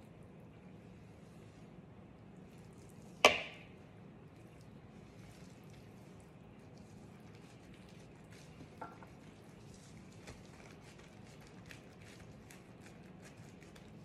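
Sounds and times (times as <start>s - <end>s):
plastic gloves rustling: 4.6s - 14.0s.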